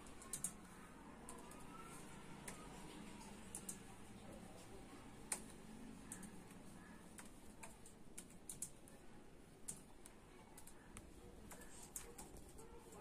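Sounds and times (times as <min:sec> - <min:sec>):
laptop keyboard typing: 0:00.0 - 0:13.0.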